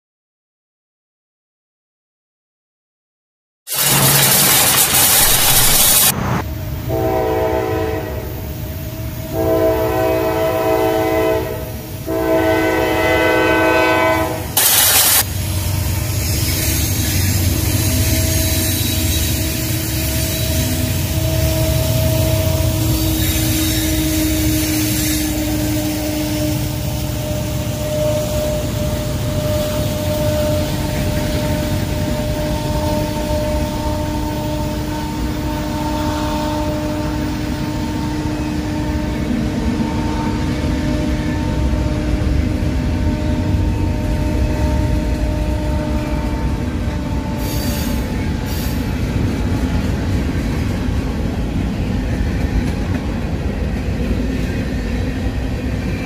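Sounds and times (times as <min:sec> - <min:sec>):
loud rush of noise: 0:03.7 - 0:06.9
train wheels rumbling on rail: 0:03.7 - 0:56.0
locomotive horn blasts: 0:06.8 - 0:15.2, 0:20.7 - 0:48.2.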